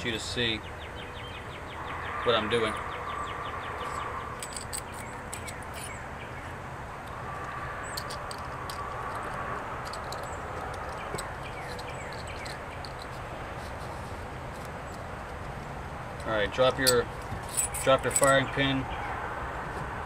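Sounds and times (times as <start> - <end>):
birds chirping: 0.0 - 19.2
outdoor background noise: 0.0 - 20.0
light clicks of steel parts: 3.8 - 6.0, 7.0 - 18.7.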